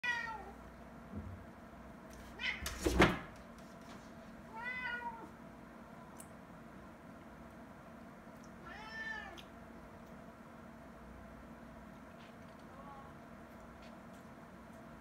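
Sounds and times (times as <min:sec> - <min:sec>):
cat meowing: 0:00.0 - 0:00.5, 0:04.5 - 0:05.3, 0:08.6 - 0:09.4
thump against door: 0:02.6 - 0:03.4.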